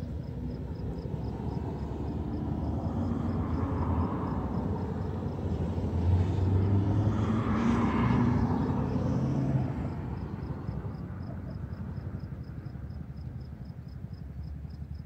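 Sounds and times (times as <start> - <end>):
low traffic rumble: 0.0 - 15.0
car driving past: 0.4 - 11.8.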